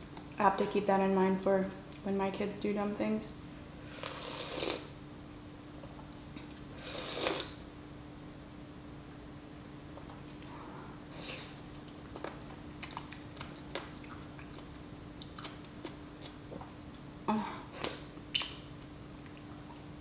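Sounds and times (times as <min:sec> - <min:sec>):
faint steady hum: 0:00.0 - 0:20.0
slurping noodles: 0:04.0 - 0:04.9, 0:06.8 - 0:07.6
chewing with wet mouth clicks: 0:11.6 - 0:17.1, 0:17.8 - 0:19.9.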